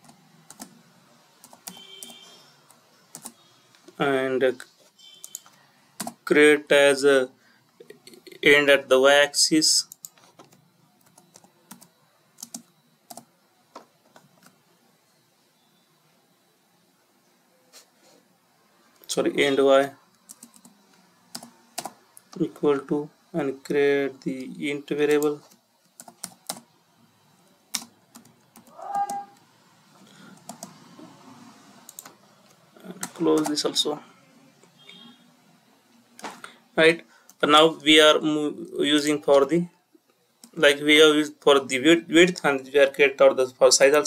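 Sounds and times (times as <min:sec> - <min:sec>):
typing on computer keyboard: 0:00.0 - 0:00.8, 0:01.4 - 0:03.4, 0:05.2 - 0:06.2, 0:09.9 - 0:13.3, 0:20.2 - 0:22.4, 0:25.4 - 0:26.6, 0:27.7 - 0:29.2, 0:30.4 - 0:30.8, 0:31.9 - 0:32.2.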